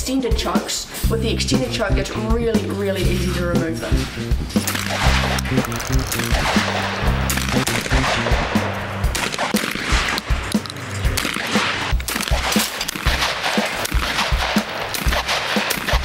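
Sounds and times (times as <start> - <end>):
background music with beat: 0.0 - 16.0
shotgun shots: 4.6 - 16.0.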